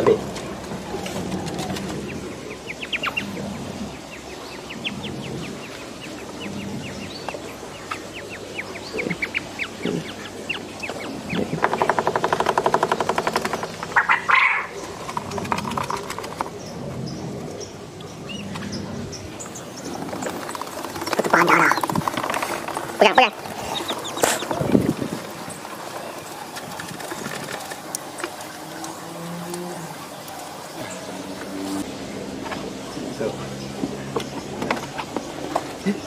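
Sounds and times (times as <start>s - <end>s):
rapid rattling buzz: 11.6s - 16.6s, 19.6s - 26.1s
quail chirping: 12.8s - 16.2s, 20.2s - 25.0s.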